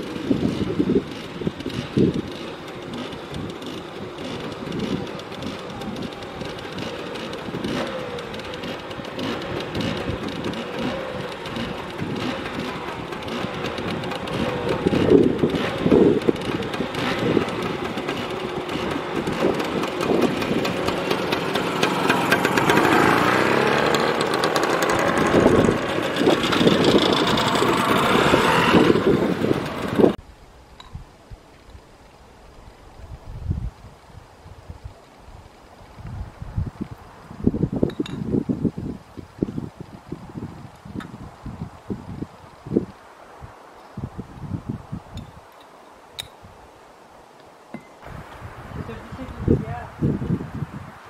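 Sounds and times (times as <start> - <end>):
scooter engines revving: 0.0 - 30.2.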